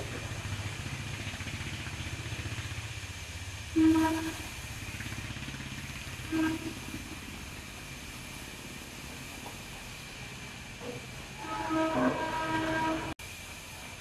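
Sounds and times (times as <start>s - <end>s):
horn toots: 11.4s - 13.2s.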